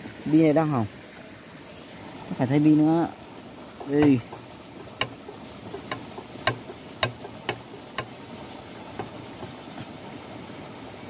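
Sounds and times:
metallic clicks of turbine shaft: 3.8s - 8.2s.

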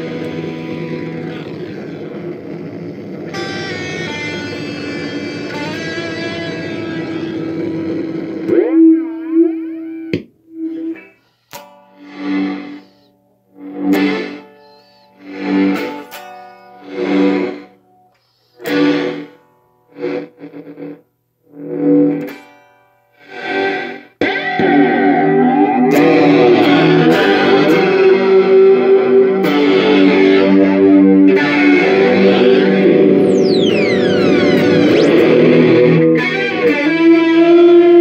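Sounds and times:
swirling flanged guitar wash: 0.0s - 9.9s, 24.4s - 38.0s
electric guitar chords with flanger: 0.0s - 38.0s.

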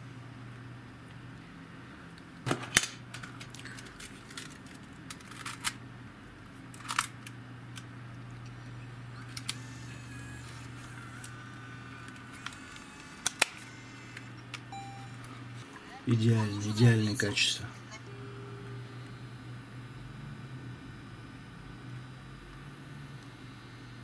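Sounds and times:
faint high whine: 8.5s - 24.0s
camcorder clicks and snaps: 9.3s - 9.7s, 12.0s - 15.3s.

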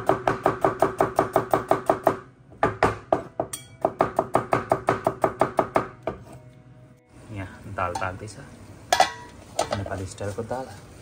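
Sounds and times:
knife chopping on plastic board: 0.0s - 6.3s.

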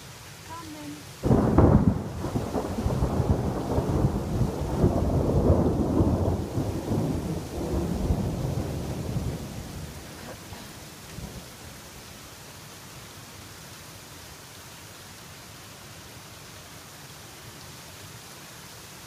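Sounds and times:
rain hissing: 0.0s - 19.0s
thunder rumbling: 1.2s - 11.6s.

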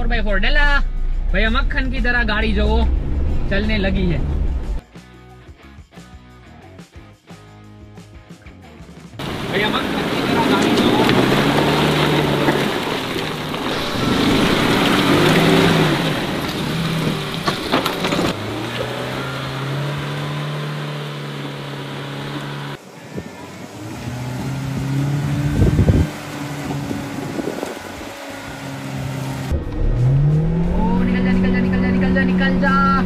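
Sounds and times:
car engine revving: 0.0s - 4.8s, 9.2s - 33.0s
rushing noise: 9.2s - 32.1s.

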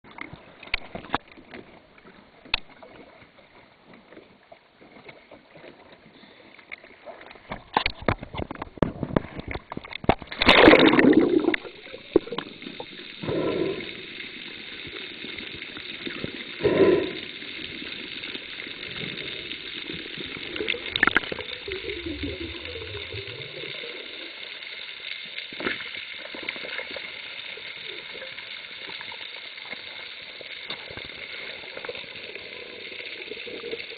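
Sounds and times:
water sloshing and gurgling: 0.0s - 33.9s
loud bubbling bursts: 10.4s - 14.0s, 20.7s - 24.0s.

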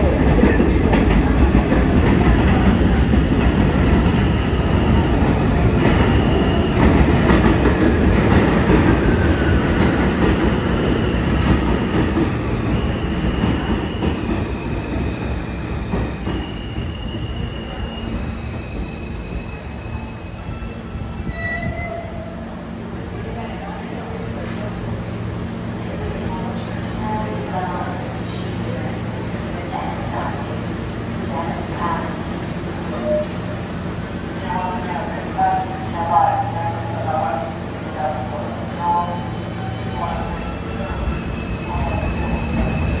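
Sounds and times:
subway train rumble and rail clatter: 0.0s - 43.0s
high wheel squeal: 16.3s - 22.4s, 39.2s - 43.0s.

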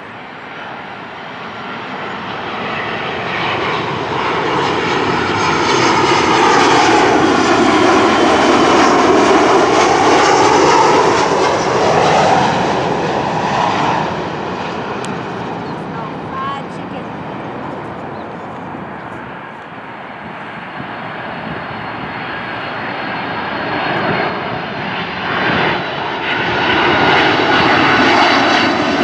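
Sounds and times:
jet airliner passing overhead: 0.0s - 29.0s.

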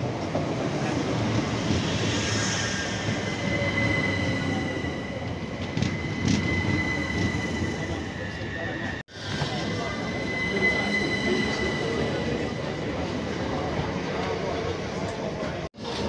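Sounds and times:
train rumbling on rails: 0.0s - 16.0s
high wheel squeal: 1.3s - 13.8s.

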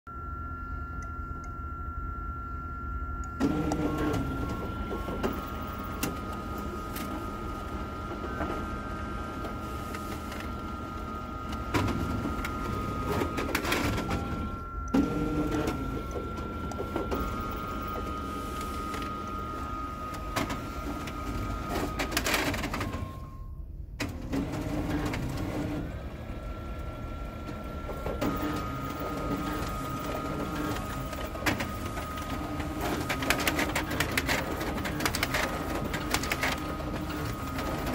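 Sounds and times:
laser printer high whine: 0.2s - 23.6s, 24.5s - 37.9s
printer paper squeaks: 3.4s - 23.2s, 27.6s - 37.9s.

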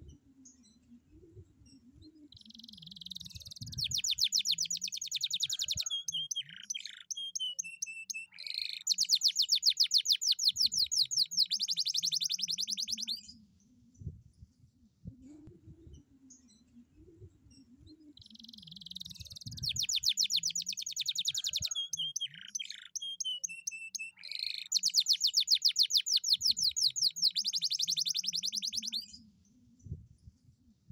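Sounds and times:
canary singing: 2.3s - 13.3s, 18.1s - 29.1s.

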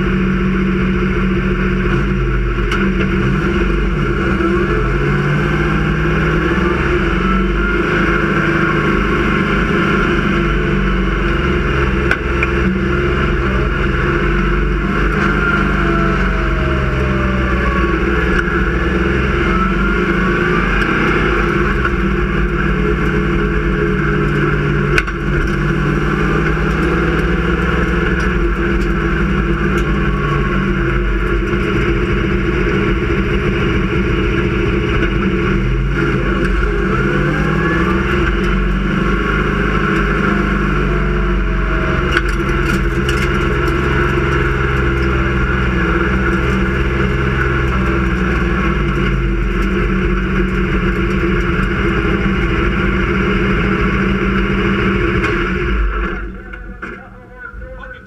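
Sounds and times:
race car engine running: 0.0s - 58.0s.

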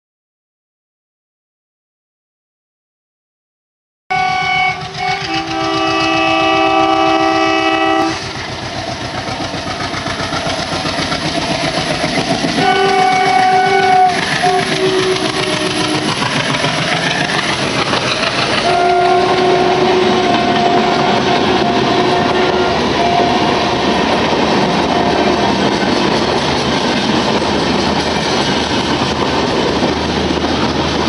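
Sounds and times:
locomotive horn blasts: 4.1s - 8.4s, 12.6s - 16.2s, 18.6s - 24.0s, 24.7s - 25.7s
diesel engine chugging: 4.4s - 31.0s
coaches rattling over rail joints: 4.5s - 31.0s.

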